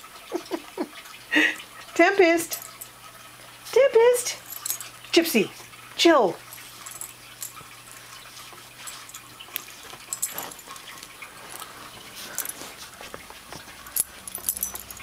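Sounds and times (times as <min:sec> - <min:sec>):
dogs scuffling on cushions: 0:08.3 - 0:14.4.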